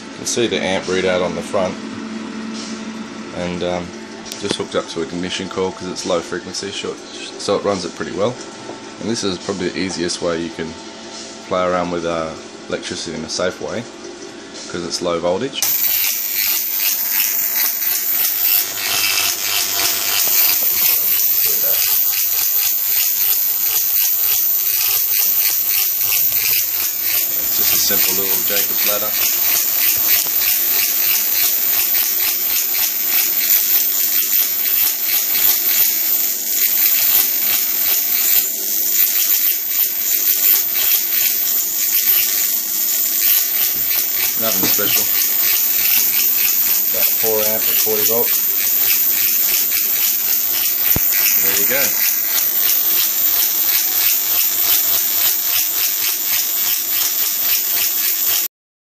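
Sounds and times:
electric arc crackling and buzzing: 15.6 - 58.5.

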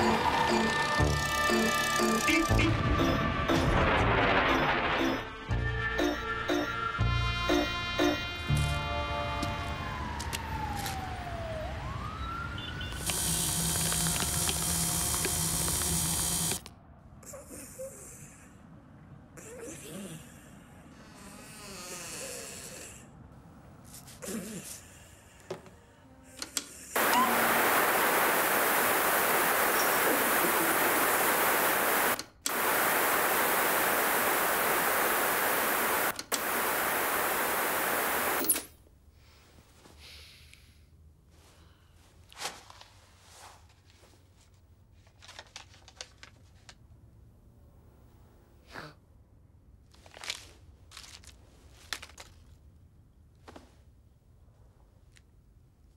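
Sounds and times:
loud steady rushing noise: 27.0 - 38.4.

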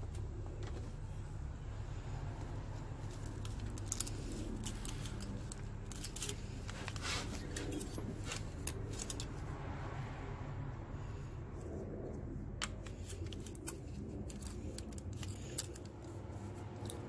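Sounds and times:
steady low hum: 0.0 - 17.0
metal tools clicking and scraping: 3.0 - 9.5, 12.6 - 17.0.

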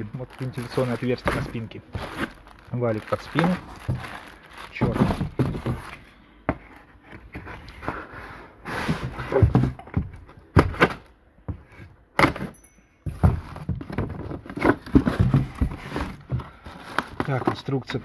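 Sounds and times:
cardboard scuffing and scraping: 0.4 - 12.5, 13.1 - 18.0
knocks and thuds on box: 4.8 - 6.6, 8.9 - 12.5, 13.1 - 16.6.

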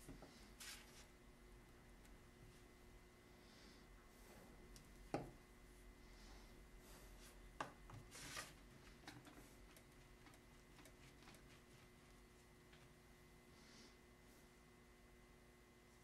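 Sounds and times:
soft rub: 6.3 - 9.8, 10.5 - 12.5.

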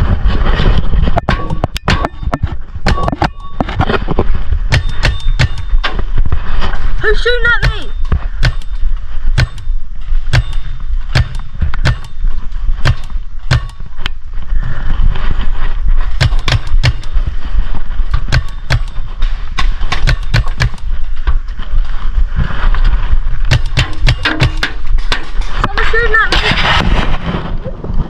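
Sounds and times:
paintball markers firing: 18.1 - 21.0, 23.5 - 24.8.

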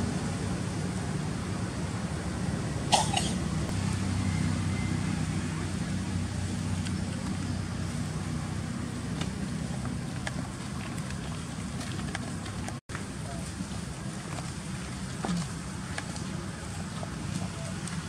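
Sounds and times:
low engine-like hum: 0.0 - 18.0.

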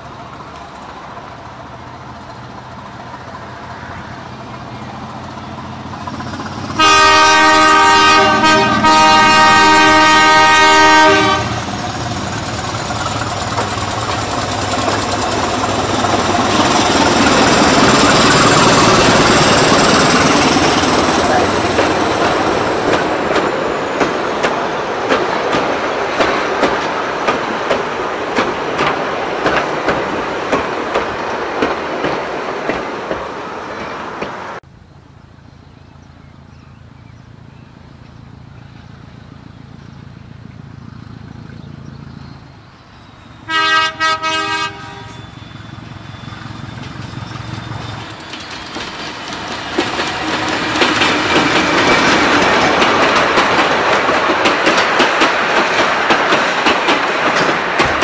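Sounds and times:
diesel locomotive engine: 0.0 - 58.0
diesel locomotive horn: 6.7 - 11.8, 43.4 - 45.8, 50.2 - 51.2
wheels clicking over rail joints: 11.0 - 34.5, 46.1 - 58.0.

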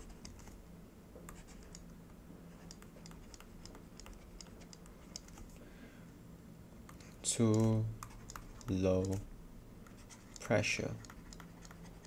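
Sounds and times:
low steady hum: 0.0 - 12.0
stylus tapping on tablet screen: 2.6 - 5.4, 6.9 - 9.2, 11.0 - 12.0.

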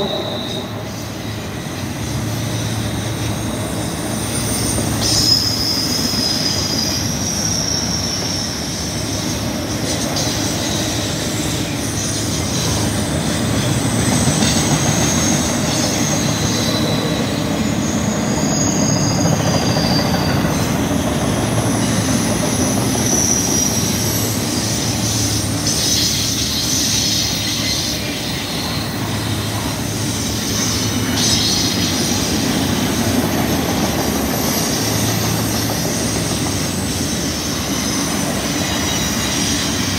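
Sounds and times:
freight train wheels rumbling: 0.0 - 39.9
wheels squealing: 0.0 - 39.9.

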